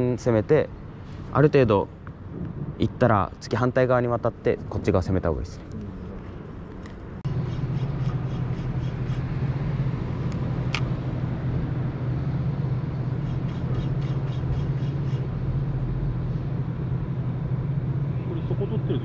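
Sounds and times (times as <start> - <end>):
low engine hum: 0.0 - 19.0
sharp click: 10.3 - 10.9.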